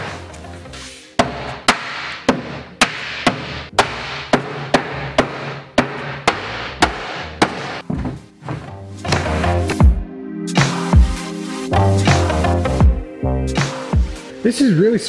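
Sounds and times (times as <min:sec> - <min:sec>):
background music: 0:00.0 - 0:15.0
mallet striking wooden tabletop: 0:01.2 - 0:07.8.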